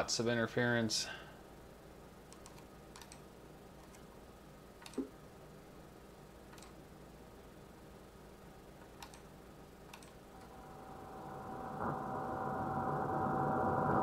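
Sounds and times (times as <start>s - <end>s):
faint room hum: 0.0s - 14.0s
computer mouse clicks: 2.3s - 4.1s, 4.8s - 5.1s, 6.5s - 6.8s, 8.8s - 9.3s, 9.9s - 10.2s.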